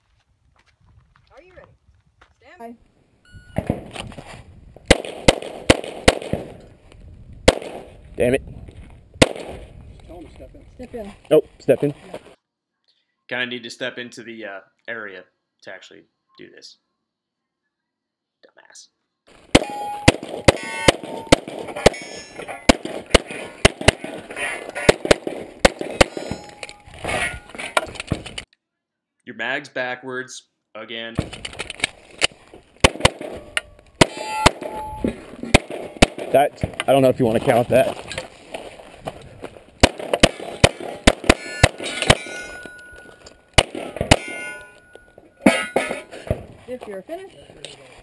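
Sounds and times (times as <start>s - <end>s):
pistol shots: 4.9s - 6.6s, 7.5s - 7.9s, 9.2s - 9.6s, 19.5s - 26.8s, 32.8s - 34.9s, 35.5s - 36.5s, 39.8s - 42.6s, 43.6s - 44.7s
thin metallic ring: 33.7s - 35.1s, 41.4s - 43.5s, 44.1s - 46.2s.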